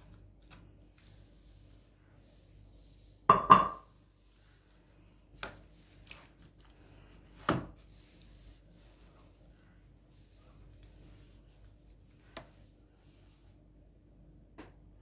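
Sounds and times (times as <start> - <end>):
steaks knocking on cutting board: 3.3 - 3.8.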